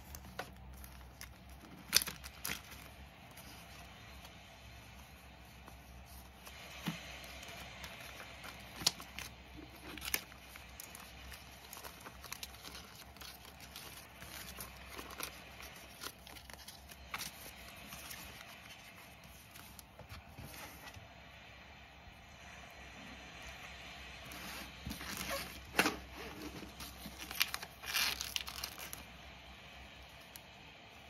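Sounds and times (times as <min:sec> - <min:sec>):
plastic sleeves rustling and crinkling: 0:00.0 - 0:21.1, 0:23.4 - 0:30.6.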